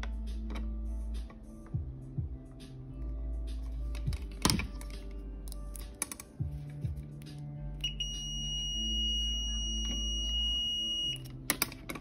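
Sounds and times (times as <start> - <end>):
background music: 0.0 - 12.0
high-pitched continuity beep: 7.8 - 11.2.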